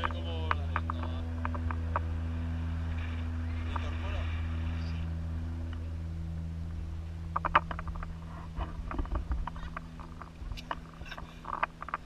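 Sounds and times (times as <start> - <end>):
low hum of airflow: 0.0 - 12.0
harness gear clicks and rattles: 7.3 - 12.0.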